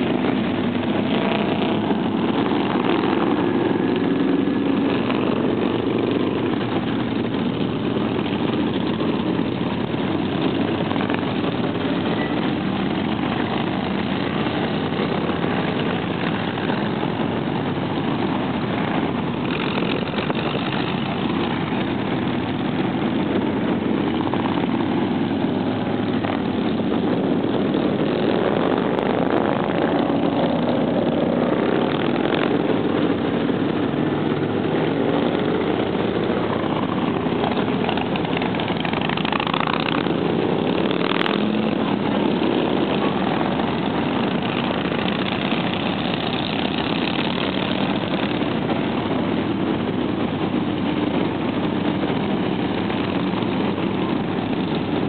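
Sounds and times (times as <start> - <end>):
motorcycles riding past: 0.0 - 55.0.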